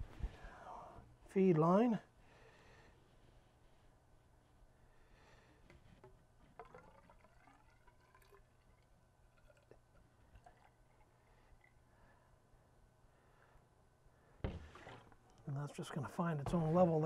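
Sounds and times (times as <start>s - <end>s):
liquid trickling into hose: 6.4s - 11.8s.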